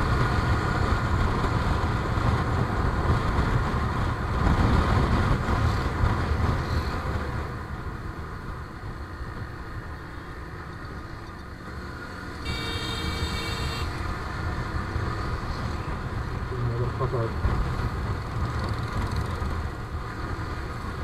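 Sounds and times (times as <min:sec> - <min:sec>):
motorcycle engine and wind rumble: 0:00.0 - 0:21.0
vehicle horn: 0:12.4 - 0:14.0.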